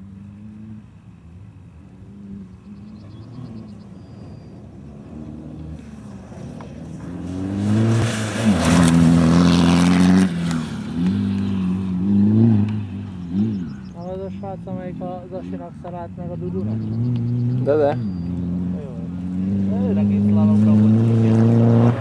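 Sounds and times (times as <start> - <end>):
rally car accelerating past: 2.1 - 13.9, 16.6 - 22.0
tyres on loose dirt: 3.8 - 14.3.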